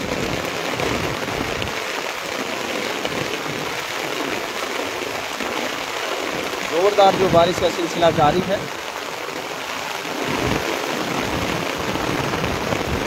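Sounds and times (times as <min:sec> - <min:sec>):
heavy rain on concrete roof: 0:00.0 - 0:13.0.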